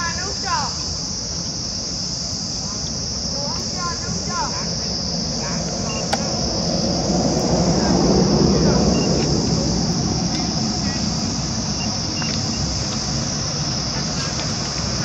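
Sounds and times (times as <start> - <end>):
insects chorus: 0.0 - 15.0
low rumble: 4.7 - 13.8.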